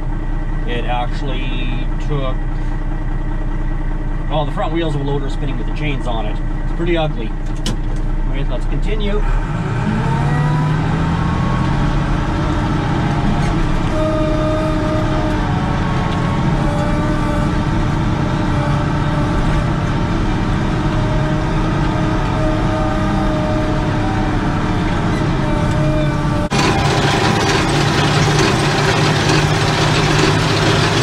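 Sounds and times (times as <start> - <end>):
diesel engine droning and whining: 0.0 - 31.0.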